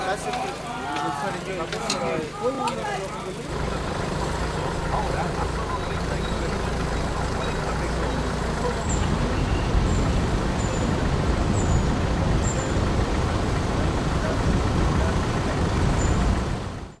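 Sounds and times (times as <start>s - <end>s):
vehicle road noise rumble: 0.0s - 17.0s
wind buffeting microphone: 8.9s - 17.0s.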